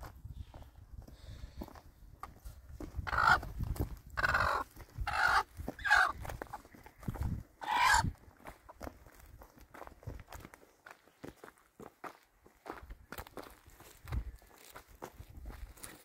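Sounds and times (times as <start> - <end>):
chickens squawking: 3.0 - 3.5, 4.2 - 6.7, 7.6 - 8.1.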